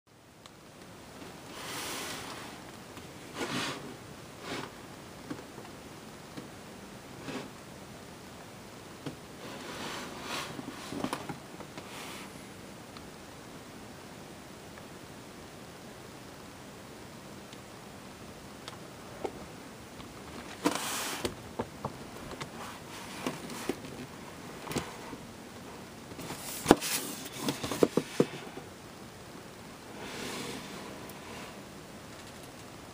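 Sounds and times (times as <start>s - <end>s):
rustling handling noise: 9.4s - 12.4s, 19.0s - 28.8s
cardboard box rustling: 26.2s - 28.6s.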